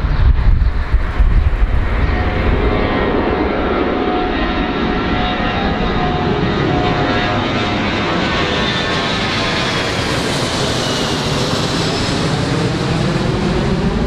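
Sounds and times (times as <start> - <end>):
jet airliner engines roaring: 0.0 - 14.0.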